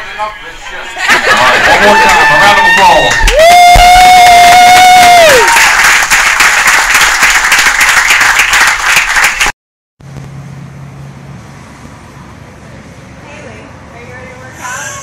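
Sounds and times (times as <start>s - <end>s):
crowd clapping and cheering: 1.1s - 9.6s
high held scream: 1.8s - 5.9s.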